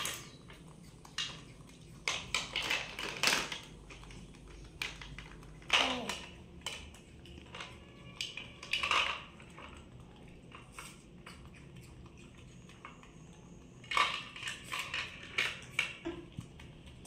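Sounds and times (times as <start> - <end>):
plastic toys clattering: 0.0 - 12.0, 13.8 - 17.0.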